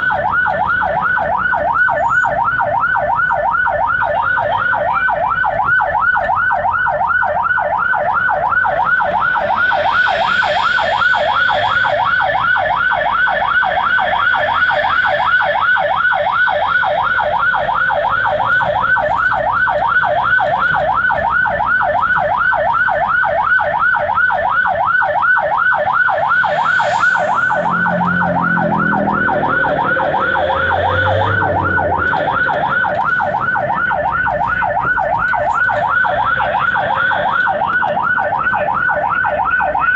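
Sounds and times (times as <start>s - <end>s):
ambulance siren yelping: 0.0s - 39.9s
deep rising tone: 26.1s - 34.7s.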